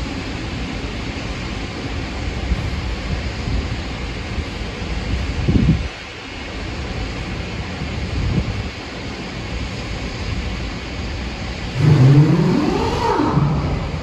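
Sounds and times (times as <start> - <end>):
rising pitched sound: 11.8 - 14.0
wind buffeting microphone: 11.8 - 14.0.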